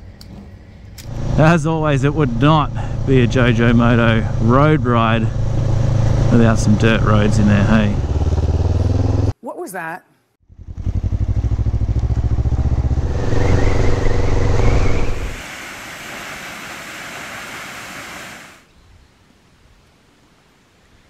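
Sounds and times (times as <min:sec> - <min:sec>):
motorcycle engine accelerating: 0:00.3 - 0:09.4, 0:10.5 - 0:15.5
steady rushing noise: 0:12.3 - 0:18.6.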